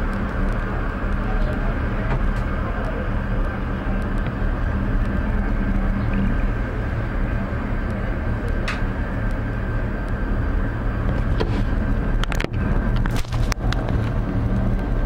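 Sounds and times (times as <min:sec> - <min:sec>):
cable car low rumble: 0:00.0 - 0:15.0
sharp clicks and knocks: 0:11.0 - 0:14.9.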